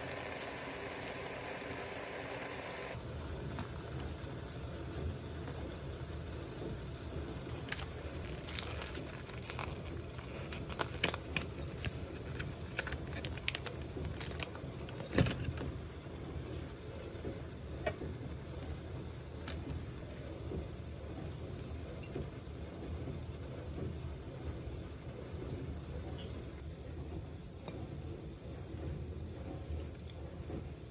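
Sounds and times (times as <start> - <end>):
steady low hum: 0.0 - 23.8
plastic tray clicks and crinkles: 7.5 - 15.7.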